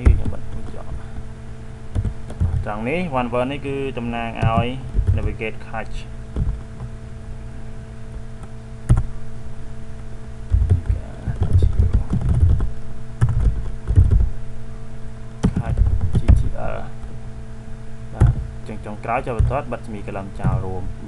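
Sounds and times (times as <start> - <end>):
electrical hum: 0.0 - 21.0
keyboard typing: 1.9 - 2.6, 4.4 - 5.3, 6.4 - 6.9, 8.9 - 9.1, 10.5 - 14.3, 15.4 - 16.5.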